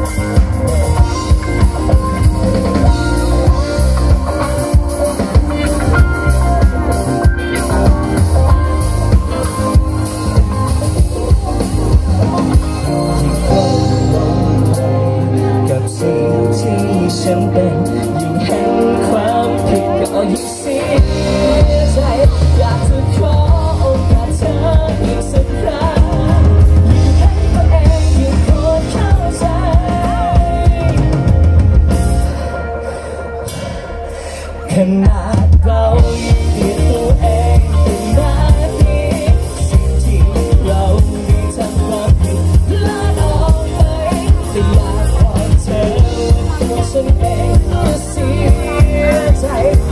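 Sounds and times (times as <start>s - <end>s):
drum beat: 0.0s - 12.9s
bass guitar: 0.0s - 49.9s
electric guitar: 0.0s - 49.9s
keyboard: 0.0s - 49.9s
lead vocal singing: 0.0s - 49.9s
live pop rock band: 0.0s - 49.9s.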